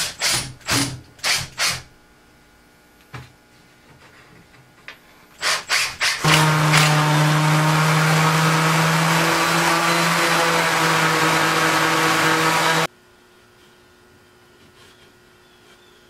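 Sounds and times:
power tool motor running: 0:05.4 - 0:12.9.

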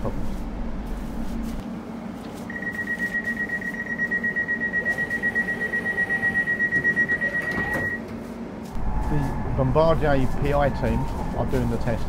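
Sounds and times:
train door warning beeper: 0:02.5 - 0:08.1.

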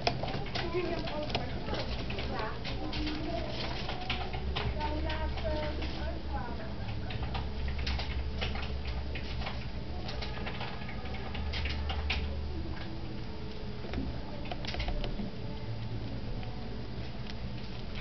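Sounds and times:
rats scrabbling in hay: 0:00.0 - 0:04.3
rat nibbling and grooming: 0:00.0 - 0:18.0
small clicks and scratching: 0:00.0 - 0:18.0.

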